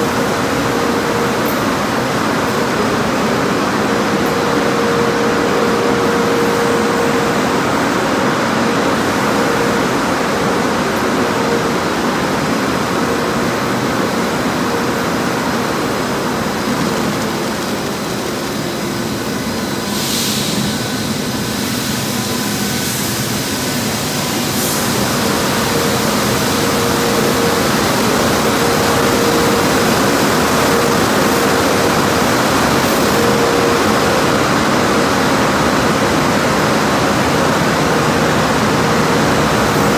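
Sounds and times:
steady machine hum: 0.0s - 39.9s
water spraying: 15.2s - 39.9s.

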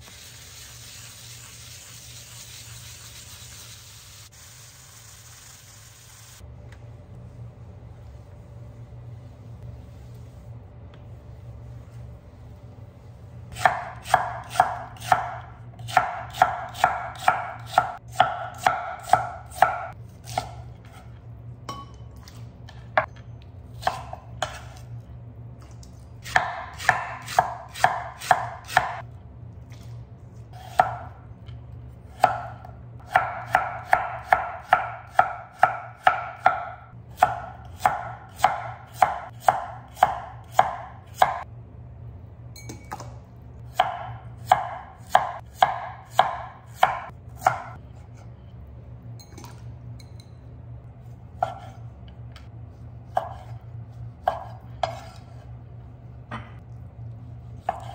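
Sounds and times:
knife chopping on wooden board: 13.5s - 21.0s, 23.8s - 24.8s, 26.2s - 29.0s, 32.1s - 41.4s, 43.7s - 47.8s, 51.4s - 51.8s, 53.1s - 53.6s, 54.2s - 55.4s, 57.6s - 57.9s.

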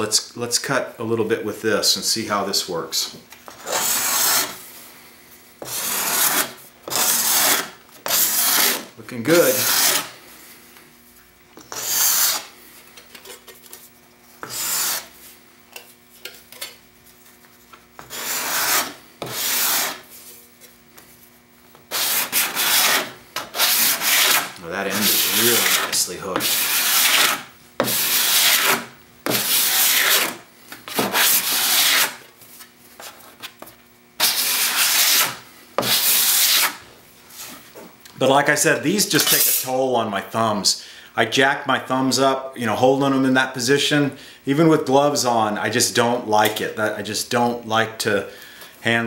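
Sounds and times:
scraper rasping across wood: 3.5s - 4.6s, 5.6s - 10.1s, 11.7s - 12.5s, 14.4s - 15.1s, 18.0s - 20.1s, 21.9s - 32.2s, 34.2s - 36.8s.

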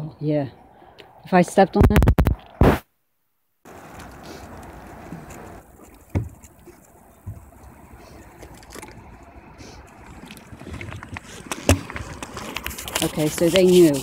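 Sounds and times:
handling noise: 3.7s - 14.0s.

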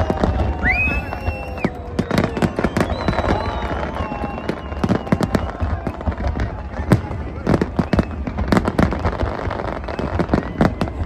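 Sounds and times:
fireworks bangs and crackles: 0.0s - 11.0s
thin whistling tone: 0.6s - 5.1s.

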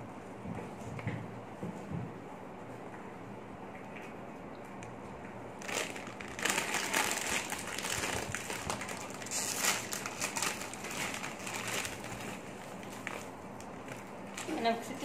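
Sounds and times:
foil snack bag crinkling: 5.6s - 15.0s.

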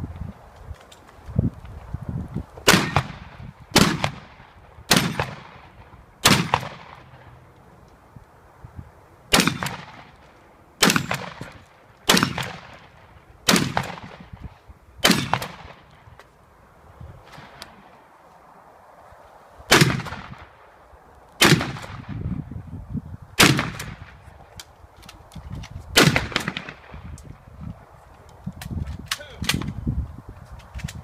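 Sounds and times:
shotgun shots: 2.6s - 7.2s, 9.3s - 10.2s, 10.8s - 14.4s, 15.0s - 15.9s, 19.7s - 20.5s, 21.4s - 22.2s, 23.4s - 24.2s, 26.0s - 27.0s.

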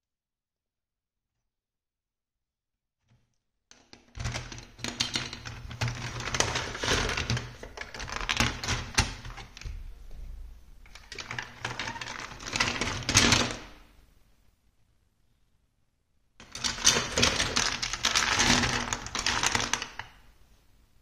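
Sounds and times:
plastic blocks clattering: 4.2s - 9.7s, 10.9s - 13.7s, 16.4s - 20.2s.

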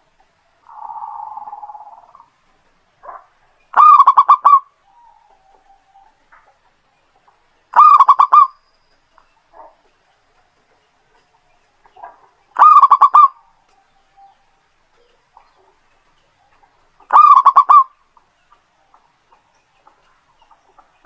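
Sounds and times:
dove trilled coos: 0.6s - 2.3s, 3.0s - 6.4s, 7.1s - 8.6s, 11.9s - 15.8s, 16.4s - 18.2s
soft purring coo: 0.7s - 2.3s.

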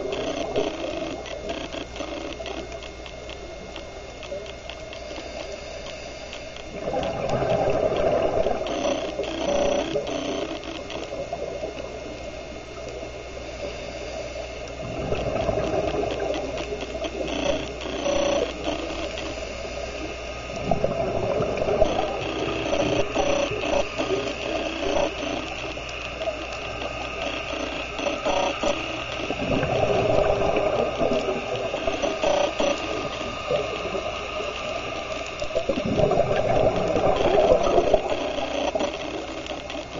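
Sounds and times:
exhaled bubbles rushing: 6.7s - 8.8s, 14.8s - 16.6s, 20.5s - 23.1s, 29.2s - 32.0s, 35.5s - 38.2s.

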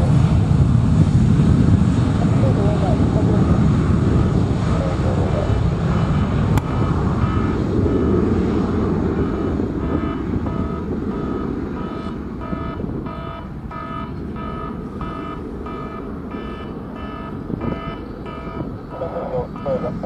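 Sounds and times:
jet engines rumbling: 0.0s - 20.0s
electronic beeping: 5.5s - 8.3s, 9.2s - 20.0s.

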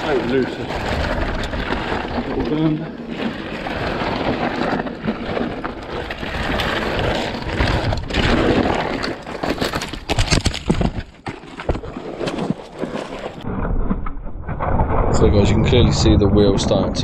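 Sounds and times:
tyres on loose dirt: 0.0s - 13.6s
bike rattling over bumps: 0.0s - 17.0s.

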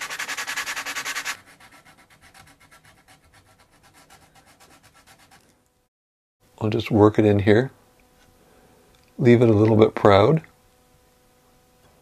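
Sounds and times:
sandpaper rubbing on wood: 0.0s - 5.4s.

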